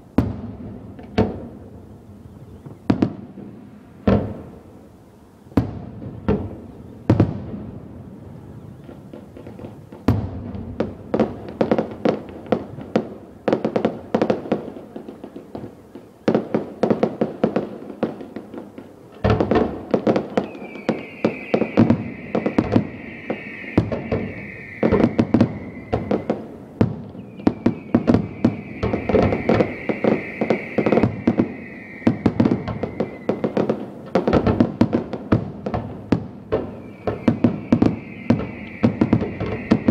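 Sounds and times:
fireworks bangs: 0:00.0 - 0:04.8, 0:05.5 - 0:39.9
long high falling tone: 0:20.6 - 0:26.7, 0:27.8 - 0:33.6.

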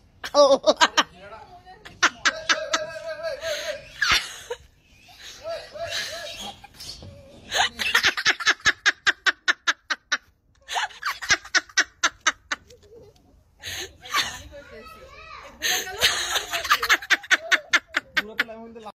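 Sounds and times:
person laughing hard: 0:05.2 - 0:06.8.

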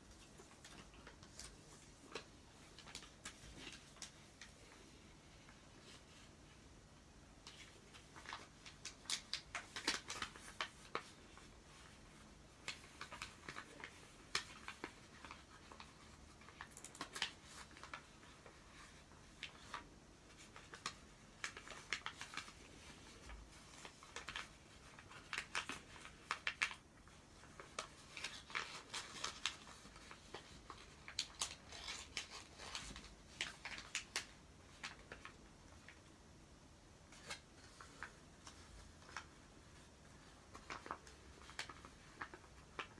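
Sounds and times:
paper crinkling while folded: 0:00.0 - 0:36.1, 0:37.0 - 0:42.9.

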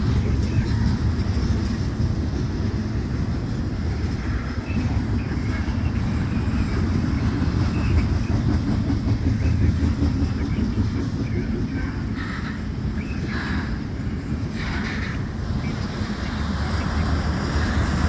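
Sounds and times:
freight train wheels rumbling: 0:00.0 - 0:18.0.

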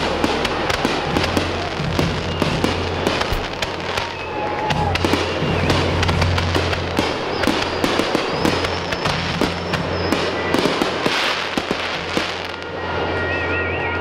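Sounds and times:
firework shells bursting: 0:00.0 - 0:12.5
fireworks crackling: 0:00.0 - 0:14.0.

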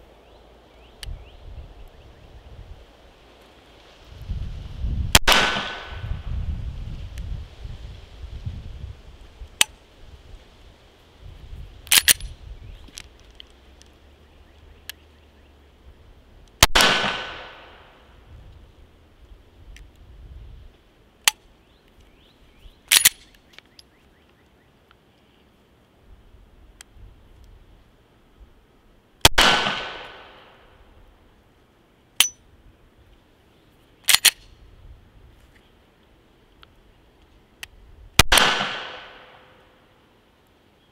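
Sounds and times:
pistol shots: 0:05.2 - 0:06.0, 0:16.6 - 0:17.9, 0:29.3 - 0:30.5, 0:38.2 - 0:39.5
sharp metallic click: 0:11.8 - 0:12.3, 0:22.9 - 0:23.9, 0:34.0 - 0:34.5
pistol slide clacks: 0:11.9 - 0:12.3, 0:22.9 - 0:23.9, 0:34.0 - 0:34.5.

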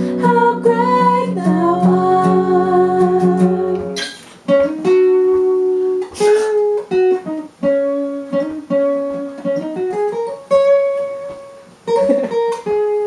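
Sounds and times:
acoustic guitar playing: 0:00.0 - 0:13.0.

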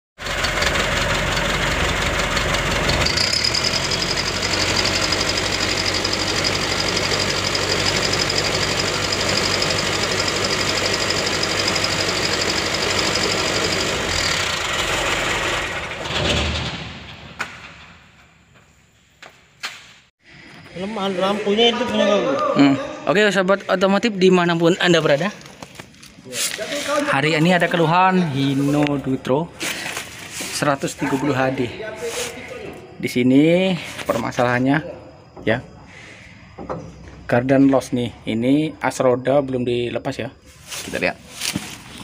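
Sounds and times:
diesel truck engine running: 0:00.2 - 0:16.3.

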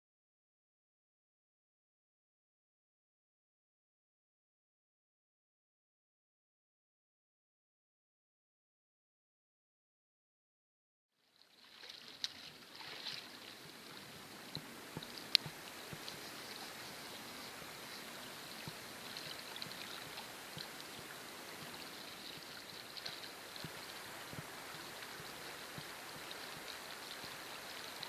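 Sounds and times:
stream water rippling: 0:11.2 - 0:28.0.

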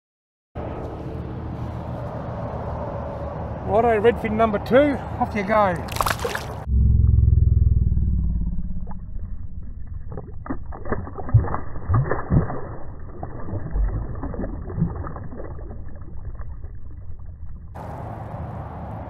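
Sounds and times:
low freeway traffic rumble: 0:00.6 - 0:08.6, 0:15.0 - 0:19.0
fish splashing in water: 0:05.8 - 0:06.7, 0:09.7 - 0:17.8.

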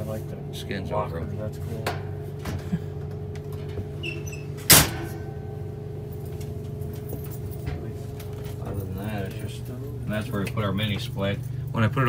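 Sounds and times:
steady low hum: 0:00.0 - 0:12.0
metal cabinet door slamming: 0:04.6 - 0:05.4.

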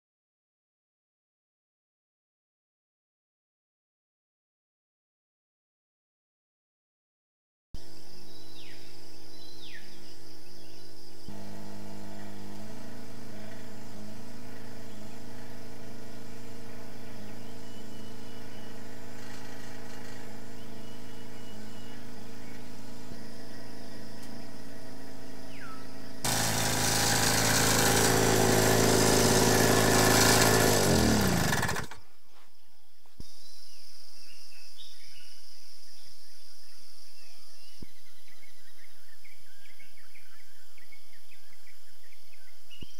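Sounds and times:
insects: 0:07.8 - 0:26.3, 0:31.8 - 0:42.9
birds whistling: 0:08.3 - 0:26.2
generator engine humming: 0:11.3 - 0:32.1.

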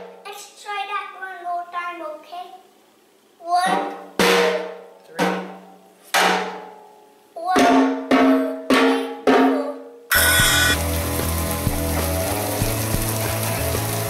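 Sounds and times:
drum hits: 0:03.7 - 0:06.8, 0:07.6 - 0:13.2
vegetables sizzling in pan: 0:10.1 - 0:14.0.

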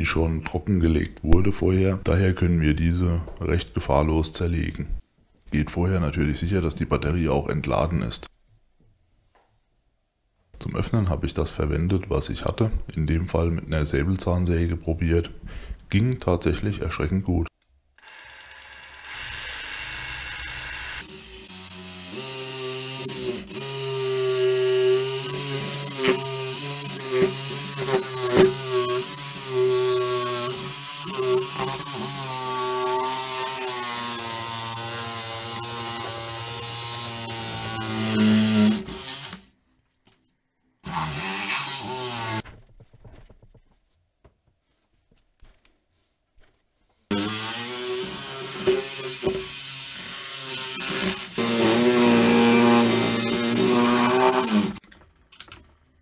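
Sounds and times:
reciprocating saw cutting plastic: 0:18.0 - 0:39.5, 0:40.8 - 0:42.5, 0:47.1 - 0:54.8.

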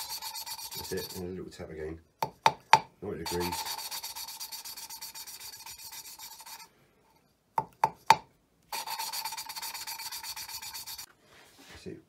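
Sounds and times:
gritty metal-on-metal rasping: 0:00.0 - 0:01.3, 0:03.3 - 0:06.7, 0:08.7 - 0:11.1.

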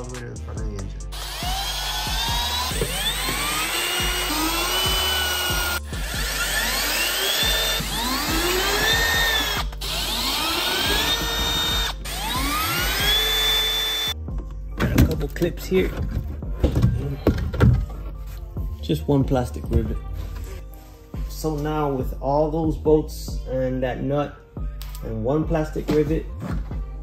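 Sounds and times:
cordless drill motor whine: 0:01.1 - 0:14.2.

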